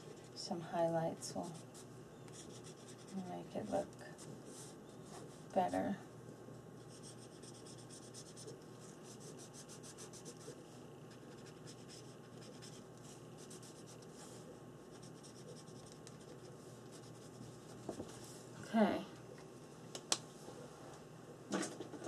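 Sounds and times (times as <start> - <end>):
pen scribbling on paper: 2.3 - 3.1, 6.9 - 14.1, 14.9 - 17.7.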